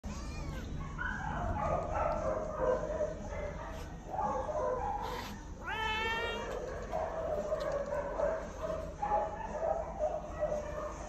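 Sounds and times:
cats meowing: 0.0s - 1.0s, 5.1s - 7.0s.

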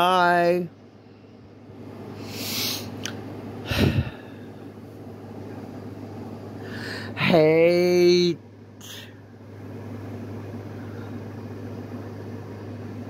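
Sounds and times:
faint steady hum: 0.0s - 13.0s
person breathing in: 3.6s - 4.6s, 6.6s - 7.2s.

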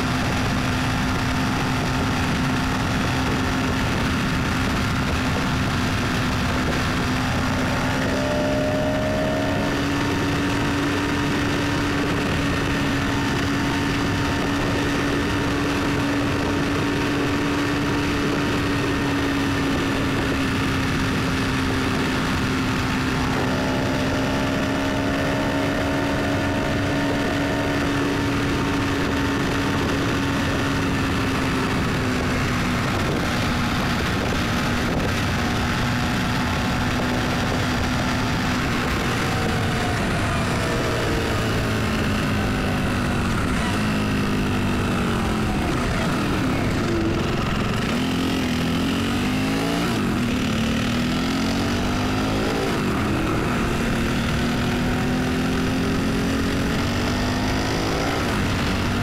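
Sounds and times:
high whine: 0.0s - 59.0s
vehicle engine drone: 0.0s - 59.0s.

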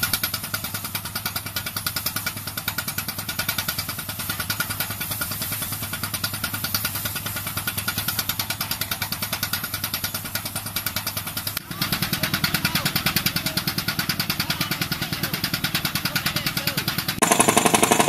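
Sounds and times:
air hammer pounding rapidly: 0.0s - 18.0s
engine and compressor drone: 0.0s - 18.0s.

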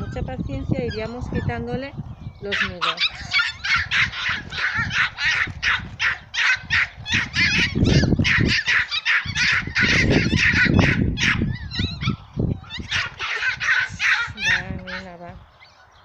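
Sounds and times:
dogs barking rapidly: 0.0s - 1.7s, 2.4s - 15.3s
wind gusting on microphone: 0.0s - 16.0s.

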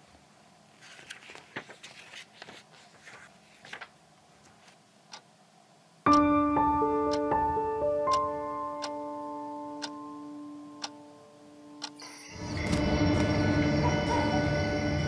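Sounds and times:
soft rustling: 0.7s - 4.8s.

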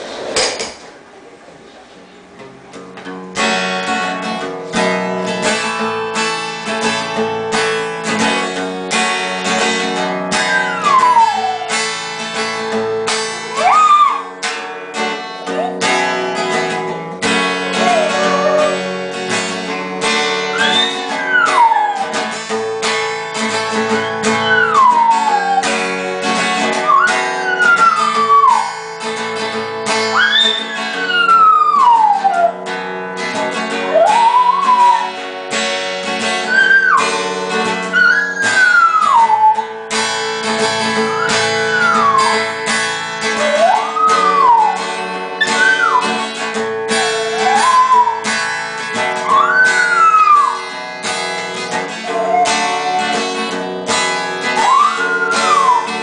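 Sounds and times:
acoustic guitar strumming: 2.2s - 56.0s
dog howling: 10.3s - 12.1s, 13.4s - 14.6s, 15.4s - 16.8s, 17.6s - 19.2s, 20.4s - 22.6s, 23.4s - 29.3s, 30.0s - 32.8s, 33.7s - 35.3s, 36.4s - 39.8s, 40.4s - 50.7s, 51.8s - 53.6s, 54.2s - 56.0s.

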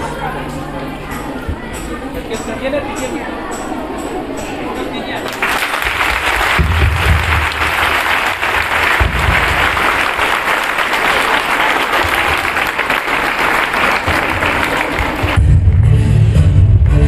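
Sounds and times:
crowd clapping: 5.2s - 15.8s.

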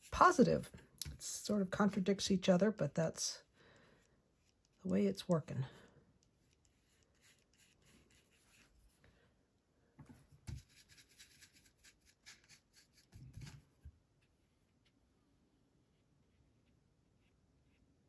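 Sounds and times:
paintbrush scratching on paper: 0.0s - 0.8s, 4.3s - 5.5s, 6.2s - 9.0s, 10.5s - 13.6s, 15.9s - 18.0s.

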